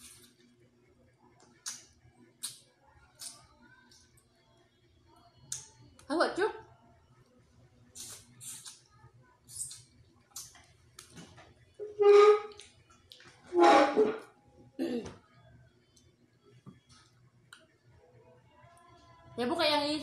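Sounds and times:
wet mouth eating sounds: 0:09.5 - 0:11.1.

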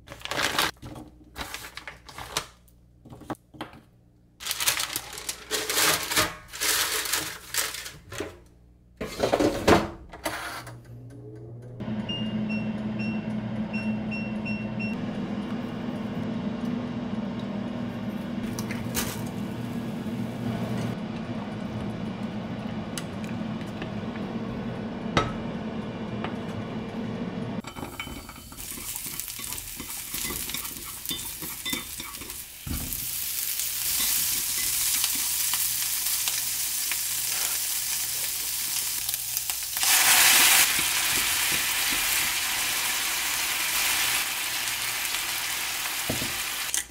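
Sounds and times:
food sizzling in a pan: 0:27.8 - 0:46.7.

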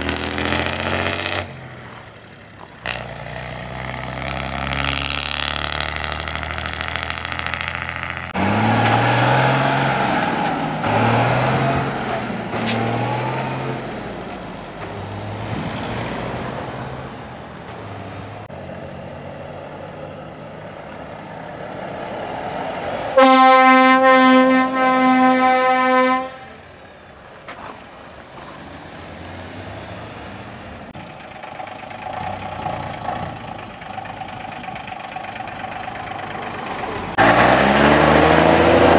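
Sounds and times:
truck engine running: 0:00.0 - 0:15.7, 0:30.5 - 0:38.9
diesel truck engine revving: 0:00.0 - 0:27.2, 0:28.2 - 0:38.9
truck air horn: 0:23.1 - 0:26.8.

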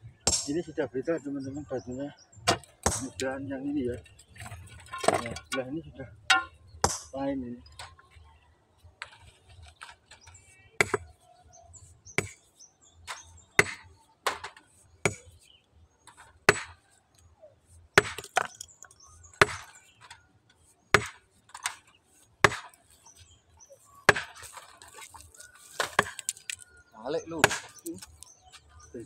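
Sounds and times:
hammer striking stone: 0:06.3 - 0:07.1, 0:12.2 - 0:12.4, 0:16.5 - 0:16.8, 0:18.0 - 0:19.7, 0:21.0 - 0:21.8.

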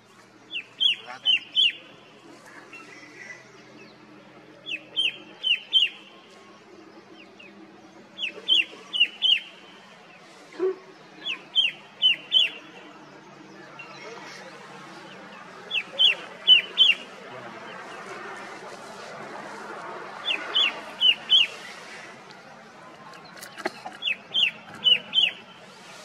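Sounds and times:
bird singing sharp downward notes: 0:00.5 - 0:02.0, 0:02.6 - 0:06.1, 0:07.0 - 0:09.9, 0:11.1 - 0:18.0, 0:20.2 - 0:21.7, 0:24.0 - 0:25.6.

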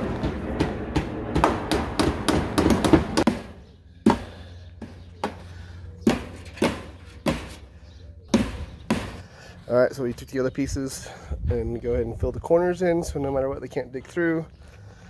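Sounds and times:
hammer striking nails into wood: 0:00.6 - 0:03.5.

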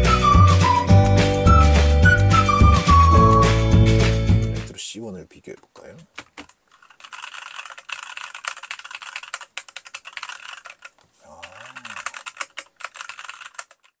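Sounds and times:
typing on mechanical keyboard: 0:06.2 - 0:14.0.

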